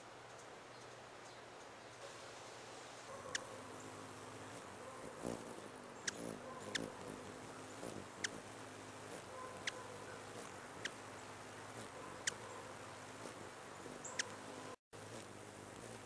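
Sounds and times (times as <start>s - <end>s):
faint background hiss: 0.0s - 16.0s
bird chip calls: 3.2s - 8.4s, 9.3s - 12.7s, 13.8s - 14.5s.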